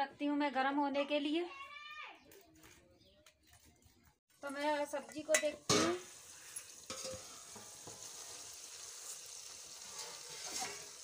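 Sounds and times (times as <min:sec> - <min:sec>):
vegetables sizzling in a pan: 0:04.3 - 0:11.0.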